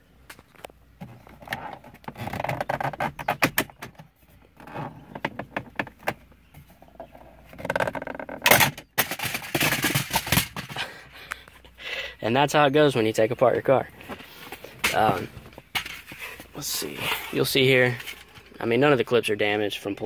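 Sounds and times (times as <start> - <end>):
plastic trim clattering: 7.5 - 10.8.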